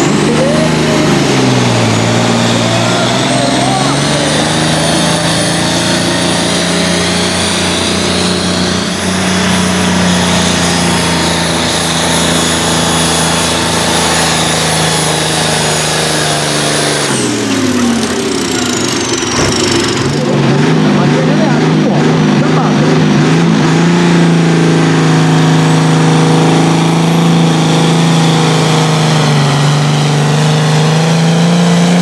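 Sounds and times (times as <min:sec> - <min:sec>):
tractor diesel engine under load: 0:00.0 - 0:32.0
engine knock: 0:17.2 - 0:23.0.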